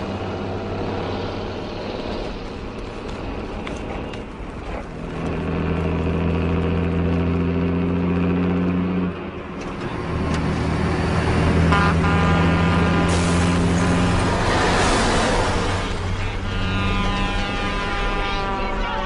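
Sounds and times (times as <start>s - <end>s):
truck diesel engine running: 0.0s - 19.0s
loud rush of noise: 9.3s - 19.0s
truck air horn blast: 11.5s - 19.0s.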